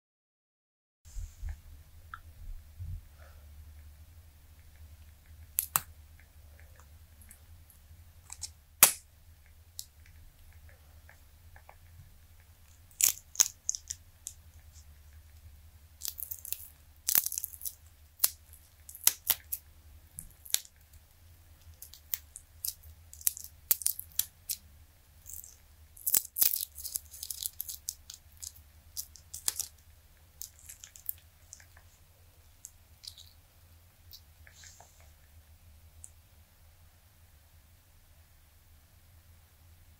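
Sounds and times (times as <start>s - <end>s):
silicone mold crackling off resin: 5.0s - 33.4s.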